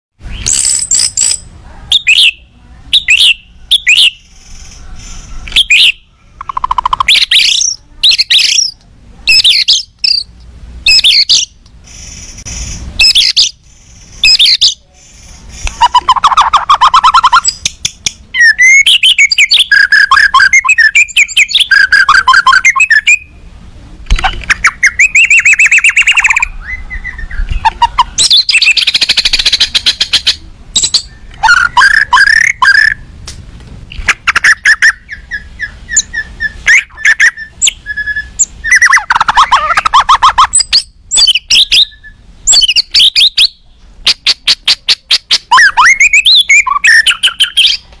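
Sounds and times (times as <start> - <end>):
songbird trills and whistles: 0.2 - 10.3, 10.9 - 13.6, 14.2 - 14.8, 15.5 - 23.3, 24.2 - 33.0, 34.0 - 47.8.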